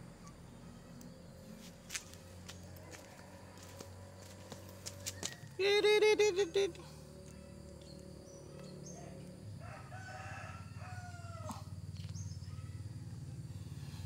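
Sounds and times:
low engine hum: 0:00.0 - 0:09.6
rooster crowing: 0:02.6 - 0:04.3, 0:09.6 - 0:11.8.

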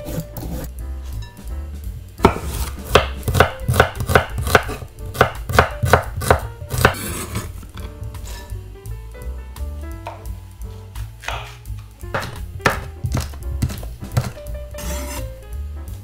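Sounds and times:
knife slicing on cutting board: 0:02.2 - 0:07.5, 0:12.2 - 0:15.3.

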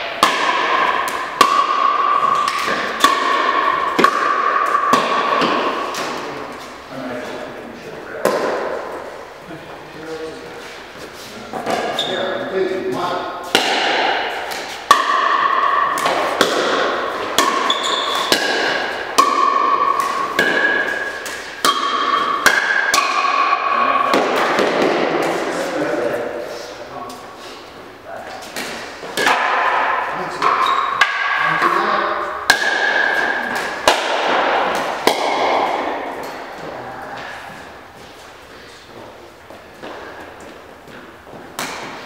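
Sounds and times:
pickleball paddle hits: 0:00.1 - 0:06.3, 0:13.5 - 0:25.4, 0:28.6 - 0:31.4, 0:32.4 - 0:36.4, 0:41.6 - 0:42.0
ball bouncing on floor: 0:00.2 - 0:06.2, 0:13.5 - 0:23.4.

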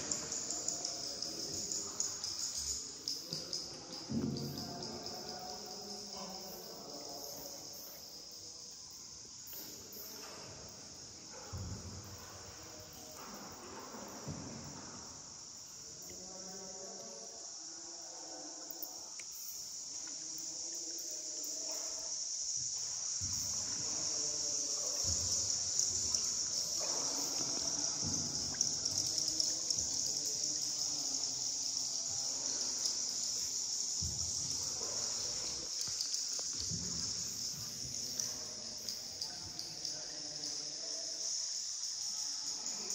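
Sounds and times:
insects chorus: 0:00.0 - 0:42.9.

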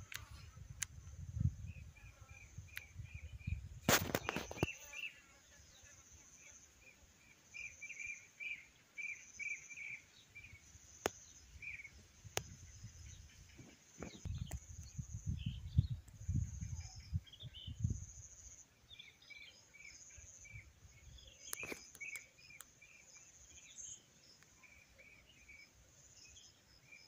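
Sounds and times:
wind rumble on microphone: 0:00.0 - 0:04.7, 0:11.6 - 0:18.3
small birds chirping: 0:00.0 - 0:27.0.

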